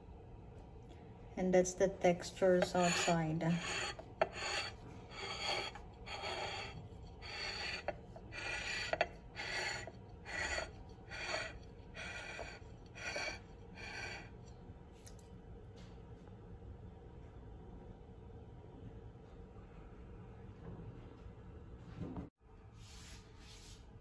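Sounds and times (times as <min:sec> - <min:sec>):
rasping rubbing strokes: 0:02.5 - 0:14.3.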